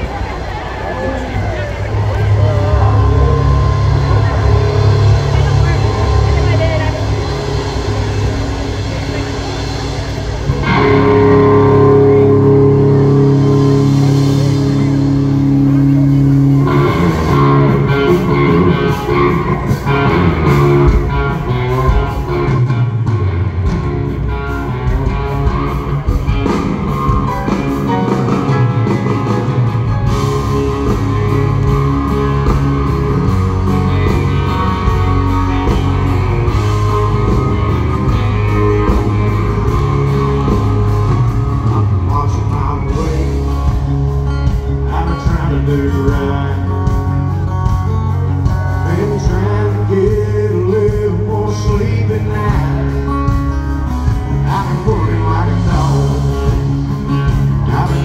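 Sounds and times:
bass: 0:00.0 - 0:58.0
drums: 0:00.0 - 0:58.0
electric guitar: 0:00.0 - 0:58.0
keyboards: 0:00.0 - 0:58.0
person singing: 0:36.6 - 0:47.8, 0:48.5 - 0:53.5, 0:54.2 - 0:58.0.

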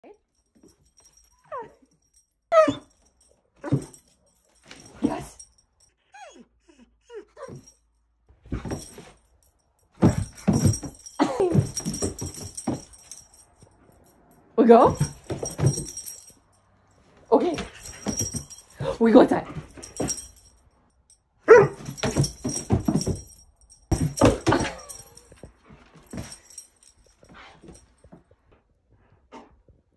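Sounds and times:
dog whining and yipping: 0:02.5 - 0:03.0, 0:06.0 - 0:07.8.

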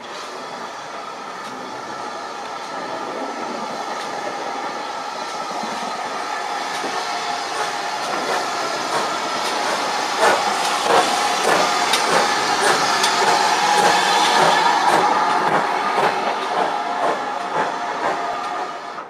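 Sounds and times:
steam hissing: 0:00.0 - 0:19.0
train rolling past: 0:00.0 - 0:19.0
wheels clicking over rail joints: 0:06.7 - 0:18.6.

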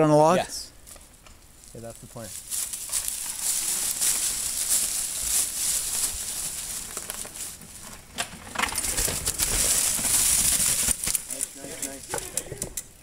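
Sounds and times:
dry leaves crunching: 0:01.6 - 0:12.0
bike rolling through leaves: 0:01.8 - 0:12.4.

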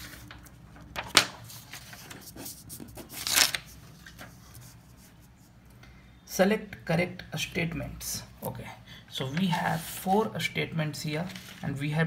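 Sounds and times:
paper rustling: 0:00.0 - 0:05.2, 0:11.1 - 0:12.0.

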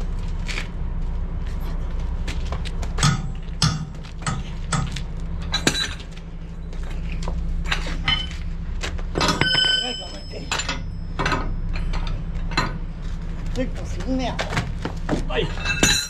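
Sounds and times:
low hum: 0:00.0 - 0:16.0
wheel brace clinking on metal: 0:03.0 - 0:06.3, 0:07.1 - 0:13.0, 0:15.2 - 0:16.0.

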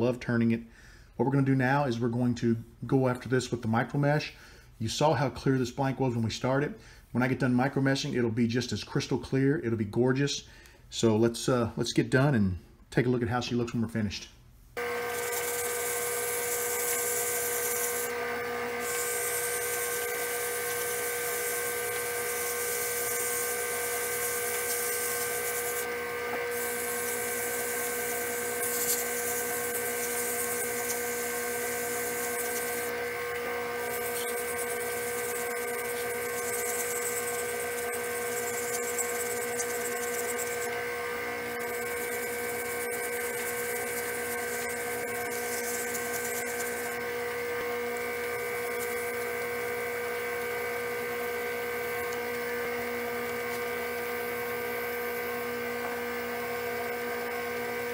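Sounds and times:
wood lathe motor whine: 0:14.8 - 0:57.9
sanding pad hissing: 0:15.1 - 0:40.8, 0:41.5 - 0:47.0.

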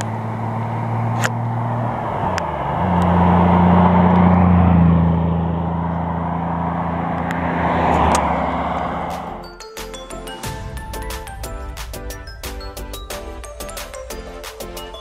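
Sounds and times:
car engine driving past: 0:00.0 - 0:09.4.

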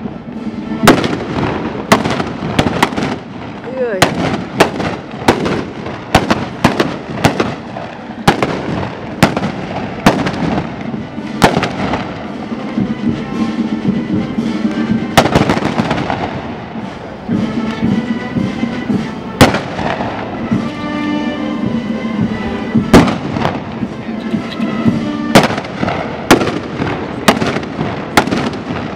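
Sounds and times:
blunderbuss shots echoing: 0:00.8 - 0:12.4, 0:15.1 - 0:16.7, 0:19.4 - 0:20.4, 0:22.8 - 0:28.9.

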